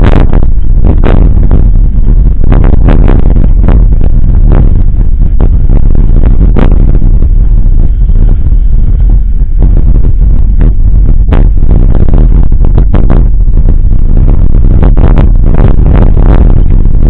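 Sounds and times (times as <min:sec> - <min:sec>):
wind and tyre rumble on microphone: 0:00.0 - 0:17.0.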